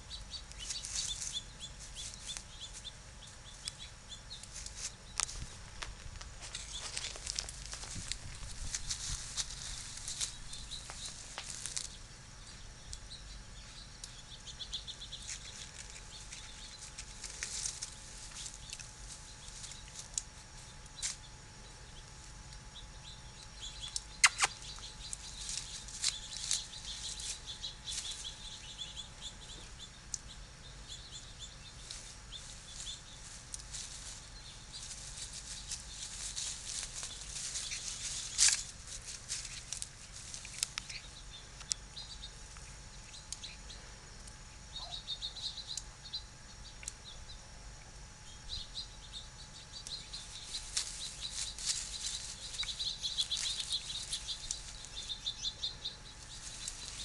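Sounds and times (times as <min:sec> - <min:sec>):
rustling grass and twigs: 0:00.0 - 0:21.4, 0:23.4 - 0:29.7, 0:30.9 - 0:43.7, 0:48.4 - 0:57.0
small birds twittering: 0:00.0 - 0:57.0
twig snapping: 0:23.9 - 0:26.6.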